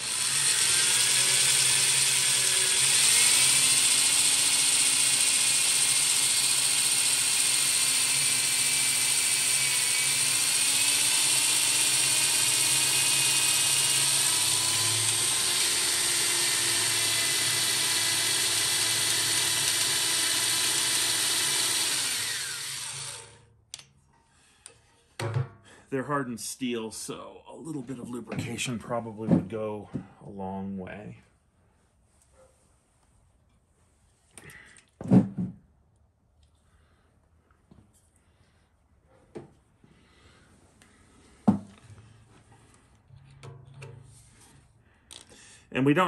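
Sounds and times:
electric drill boring into steel: 0:00.0 - 0:23.5.

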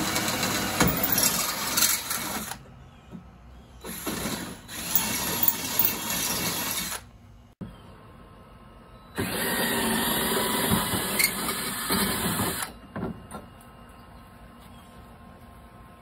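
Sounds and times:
power drill drilling: 0:00.0 - 0:02.6, 0:03.8 - 0:07.1, 0:09.2 - 0:12.7.

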